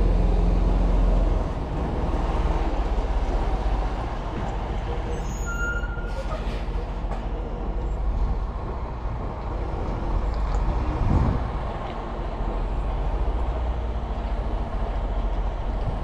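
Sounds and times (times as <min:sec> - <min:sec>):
diesel truck engine rumbling: 0:00.0 - 0:16.0
faint squeak: 0:05.1 - 0:06.8.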